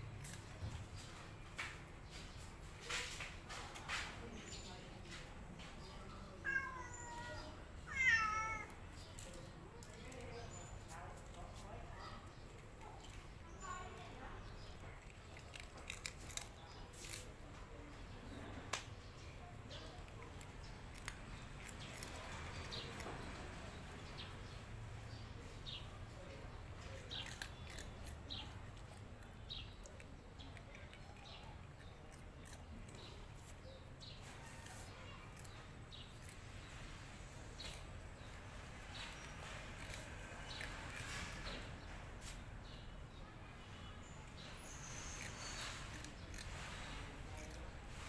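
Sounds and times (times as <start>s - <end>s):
cat crunching dry snack sticks: 7.9s - 17.8s, 19.5s - 25.0s, 25.8s - 42.4s, 44.4s - 48.0s.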